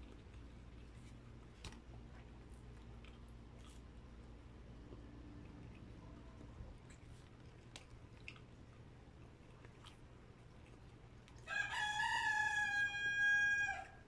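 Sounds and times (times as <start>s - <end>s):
rooster crowing: 11.4s - 14.0s.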